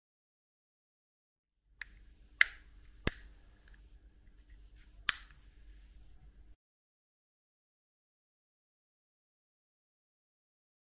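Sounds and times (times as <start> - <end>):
sharp plastic clicks: 1.8 - 4.5, 5.1 - 5.8.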